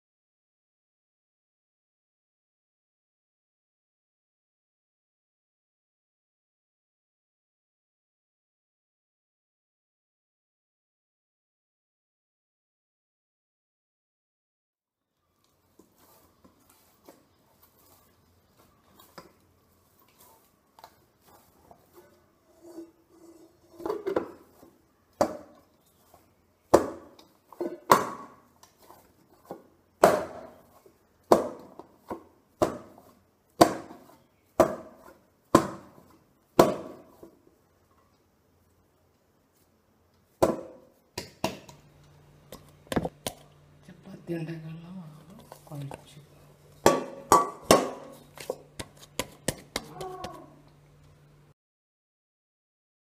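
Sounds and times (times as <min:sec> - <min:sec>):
dough rustling: 0:15.5 - 0:43.8, 0:45.0 - 0:51.1.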